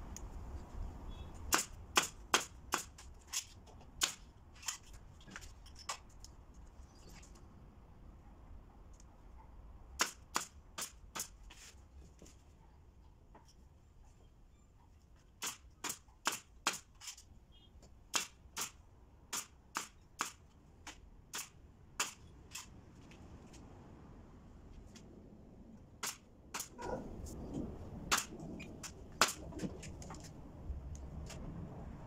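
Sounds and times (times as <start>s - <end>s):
nail gun firing: 1.5s - 3.0s, 10.0s - 11.3s, 15.4s - 16.9s, 18.1s - 20.4s, 21.3s - 22.7s, 26.0s - 26.8s, 28.1s - 29.4s.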